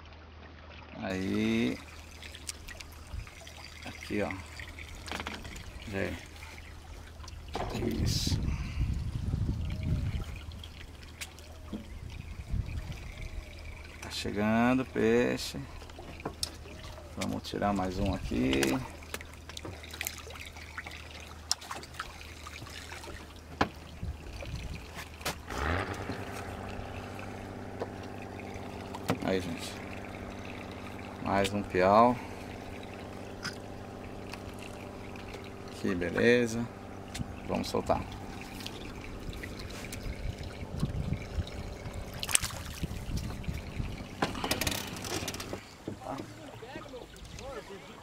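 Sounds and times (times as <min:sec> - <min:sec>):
steady motor drone: 0:01.1 - 0:46.3
fish splashing at water surface: 0:01.3 - 0:08.8, 0:09.6 - 0:45.8
sharp knocks on boat: 0:23.5 - 0:23.8.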